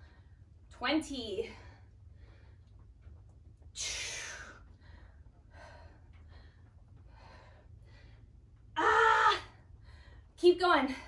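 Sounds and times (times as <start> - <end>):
woman breathing hard: 3.8 - 10.4.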